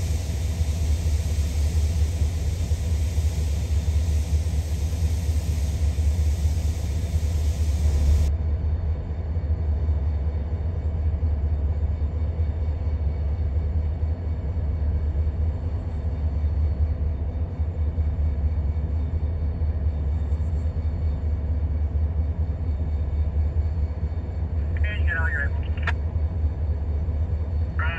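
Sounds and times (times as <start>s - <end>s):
steady hiss: 0.0s - 8.3s
diesel locomotive engines rumbling: 0.0s - 27.9s.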